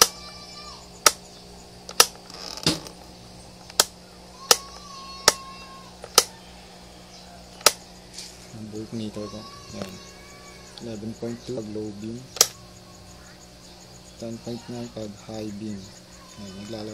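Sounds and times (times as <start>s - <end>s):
sharp clicks: 1.0s - 6.4s, 7.5s - 8.3s, 12.0s - 12.6s.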